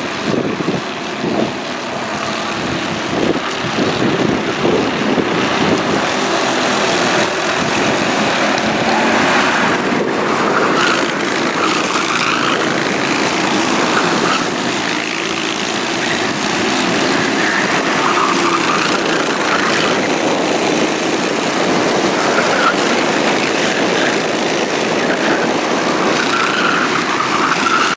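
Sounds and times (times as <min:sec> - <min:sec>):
racing kart engines: 0:00.0 - 0:27.9.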